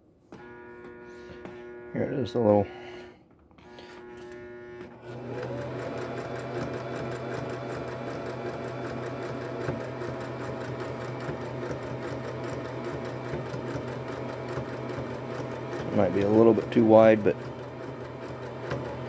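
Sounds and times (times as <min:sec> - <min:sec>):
sewing machine stitching: 0:05.0 - 0:19.0.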